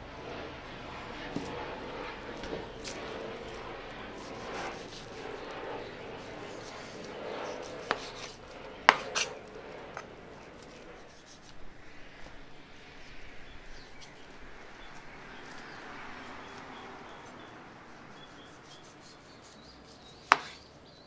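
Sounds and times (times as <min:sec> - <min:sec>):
knife slicing meat on cutting board: 0:07.4 - 0:09.4, 0:18.2 - 0:20.6.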